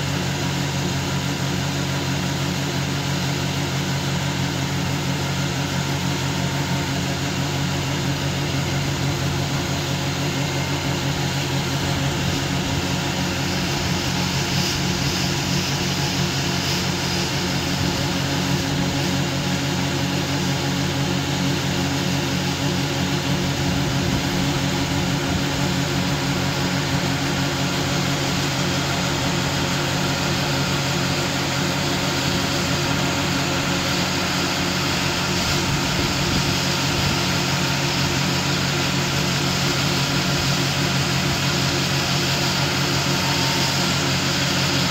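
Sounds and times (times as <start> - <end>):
auger unloading grain: 0.0 - 44.9
combine harvester running: 0.0 - 44.9.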